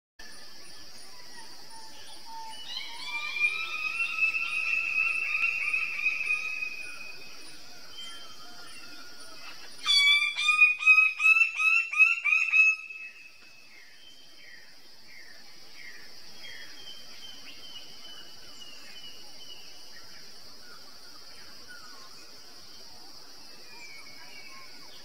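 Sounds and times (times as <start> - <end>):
high drone of insects: 0.2 - 25.0
bird calling: 2.5 - 13.4.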